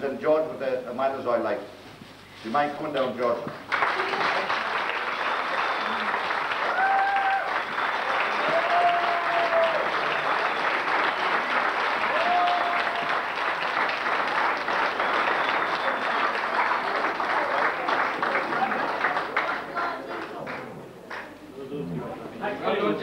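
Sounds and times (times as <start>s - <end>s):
audience applauding: 3.6s - 21.3s.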